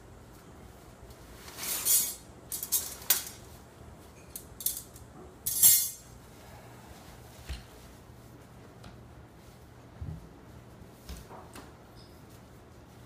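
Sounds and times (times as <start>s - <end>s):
metal poles clinking: 1.8s - 3.5s, 4.1s - 6.1s.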